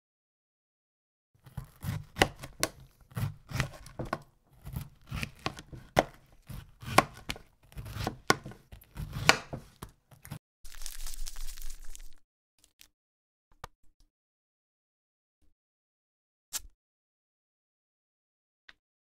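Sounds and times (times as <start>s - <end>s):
knife knocking on wooden board: 1.8s - 9.9s.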